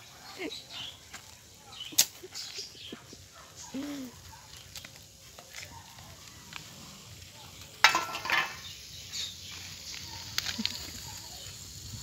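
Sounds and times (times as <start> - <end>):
sand thrown onto wire mesh: 7.8 - 11.3.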